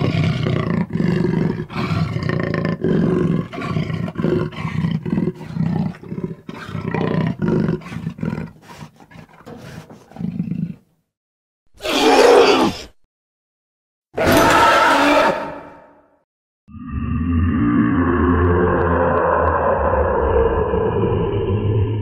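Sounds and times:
toy dinosaur roaring: 0.0 - 6.0, 14.2 - 15.7, 16.7 - 22.0.

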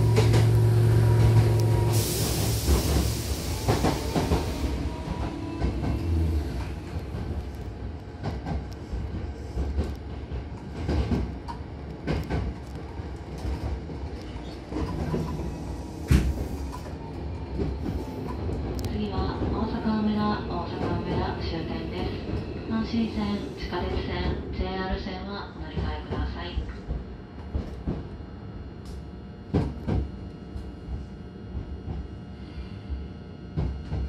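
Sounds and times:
train rumbling: 0.0 - 34.0
loud rushing hiss: 1.8 - 4.8.

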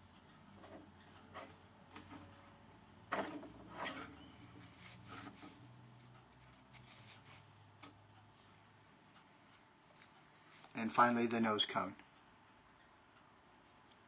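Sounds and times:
rubbing and scraping knocks: 3.1 - 5.6.

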